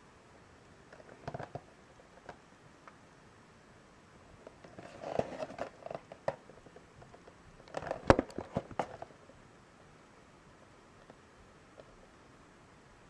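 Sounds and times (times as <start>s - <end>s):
rubbing and clicking on cardboard: 4.5s - 9.1s.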